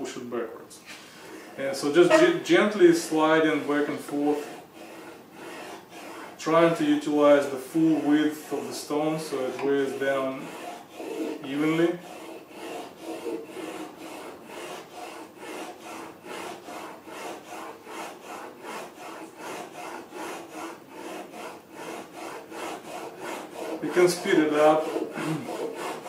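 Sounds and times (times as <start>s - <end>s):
blade rasping on sharpening stone: 10.5s - 26.0s.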